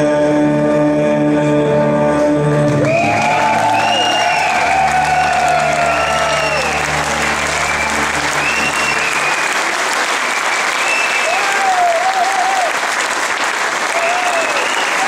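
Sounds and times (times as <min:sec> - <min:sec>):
audience applauding: 0:02.7 - 0:15.0
cheering calls: 0:02.8 - 0:15.0
band holding low chord: 0:04.4 - 0:09.5.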